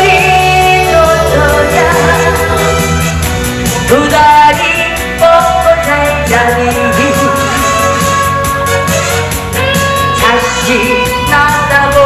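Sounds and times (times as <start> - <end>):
woman singing: 0.0 - 3.1, 3.7 - 8.3, 10.1 - 12.0
backing track with steady beat: 0.0 - 12.0.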